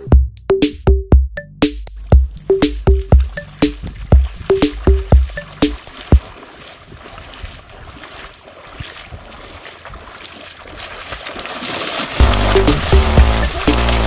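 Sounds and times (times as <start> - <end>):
feet splashing through muddy water: 2.0 - 14.0
wind noise on microphone: 3.8 - 5.1, 6.2 - 10.0.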